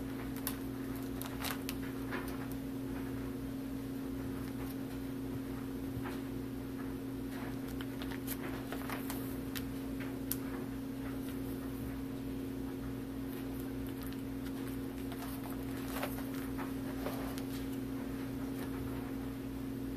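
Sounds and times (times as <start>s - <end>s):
plastic sleeves crinkling: 0.0s - 2.6s, 7.4s - 11.4s, 13.3s - 18.8s
steady low hum: 0.0s - 19.9s.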